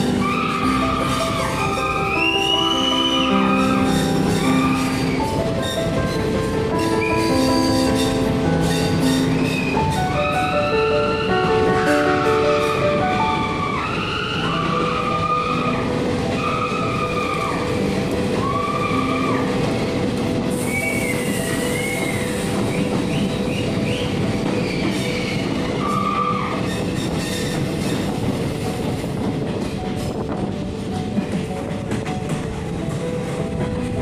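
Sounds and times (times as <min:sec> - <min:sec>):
high-pitched wheel squeals: 0:00.0 - 0:05.9, 0:20.6 - 0:28.1
train wheels rumbling on rails: 0:00.0 - 0:34.0.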